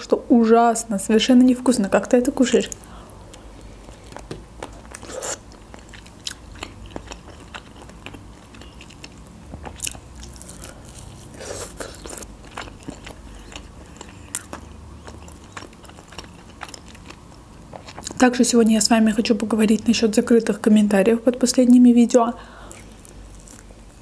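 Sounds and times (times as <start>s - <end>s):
person chewing chicken: 3.3s - 18.2s.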